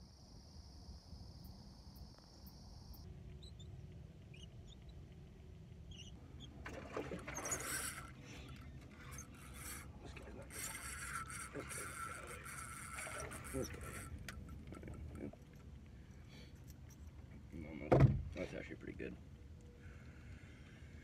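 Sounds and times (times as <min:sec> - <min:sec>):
high insect drone: 0:00.0 - 0:03.1
bird chirps: 0:02.9 - 0:05.0, 0:05.9 - 0:06.6
fishing rod rustling and clattering: 0:06.6 - 0:17.5.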